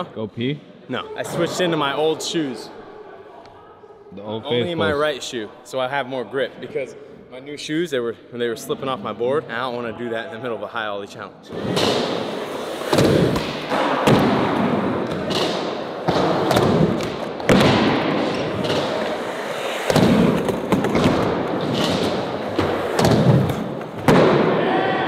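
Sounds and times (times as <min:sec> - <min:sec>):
skateboards landing with thuds: 0:12.9 - 0:19.1.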